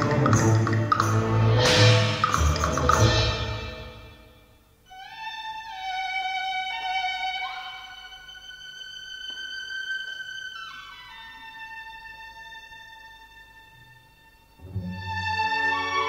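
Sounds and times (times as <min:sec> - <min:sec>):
violin melody with orchestra: 0:04.9 - 0:16.0.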